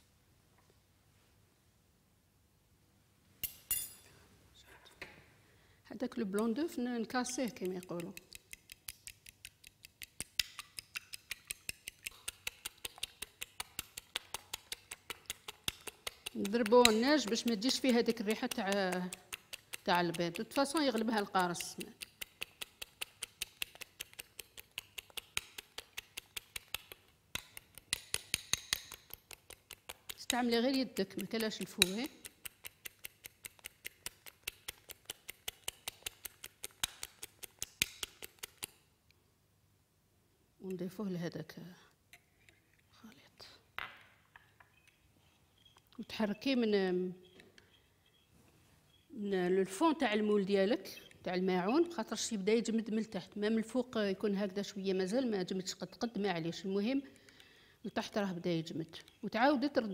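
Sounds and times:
fork beating egg white in bowl: 6.4 - 38.9, 49.4 - 59.9.

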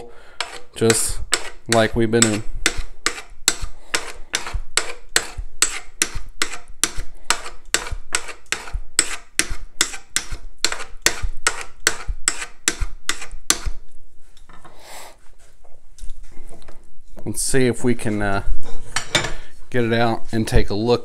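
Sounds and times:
burnisher rubbing scraper edge: 0.0 - 13.9.

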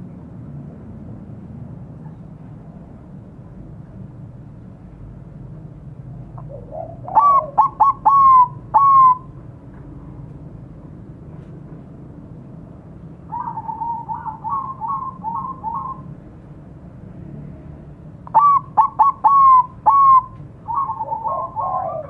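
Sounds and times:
dove cooing: 6.4 - 9.3, 13.3 - 16.1, 18.3 - 22.0.

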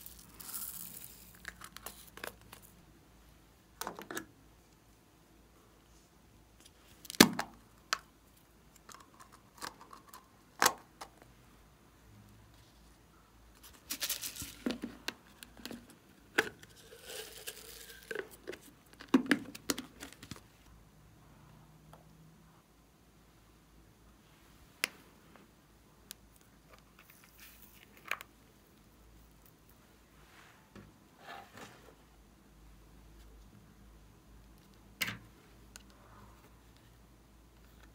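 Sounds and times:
crinkling and rustling: 12.6 - 20.7, 26.4 - 28.4.

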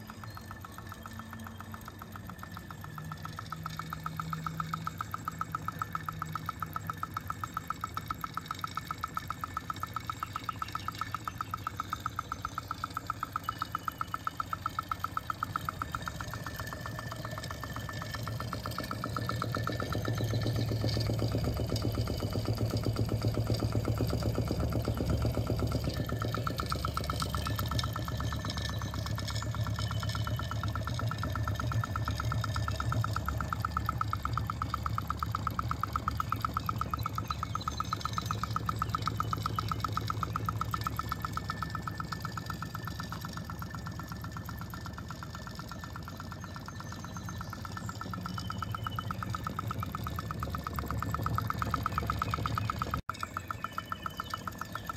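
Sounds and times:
engine running with mechanical clatter: 0.0 - 54.9.

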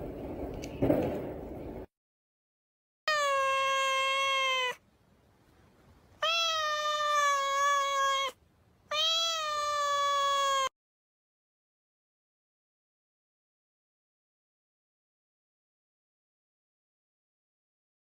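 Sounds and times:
cat meowing: 3.1 - 4.8, 6.2 - 10.7.

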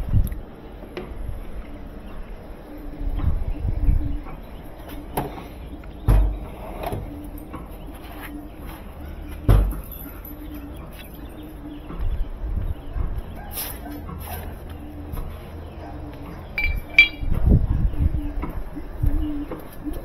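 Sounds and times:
handling bumps: 16.6 - 17.6.

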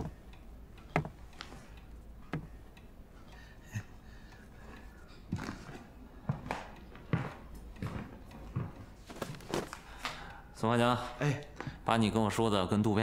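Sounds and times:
soft knocks: 0.9 - 1.2.

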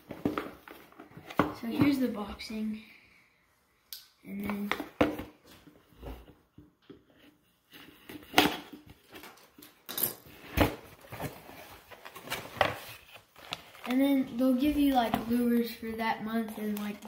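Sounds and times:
cardboard rustling: 10.4 - 15.6.

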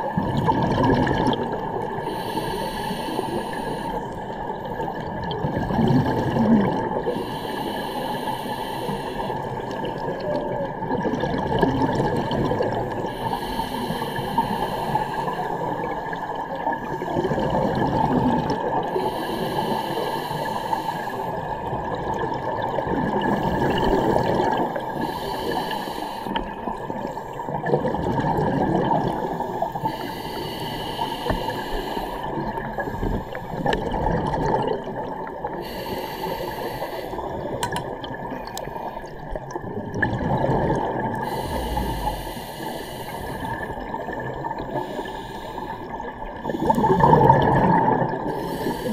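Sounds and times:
bubbling exhaled air: 0.1 - 3.8, 5.0 - 7.8, 16.9 - 48.9
regulator hissing inhale: 2.0 - 4.3, 7.1 - 9.9, 13.0 - 15.8, 18.9 - 21.5, 23.3 - 27.5, 29.3 - 33.7, 35.5 - 37.6, 41.2 - 47.0, 48.3 - 48.9.

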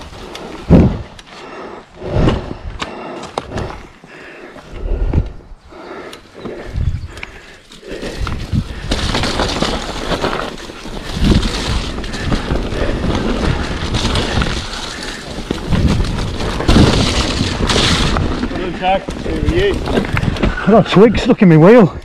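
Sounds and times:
tyres rolling over rough ground: 5.7 - 22.0
bike knocking and rattling: 6.4 - 21.0.

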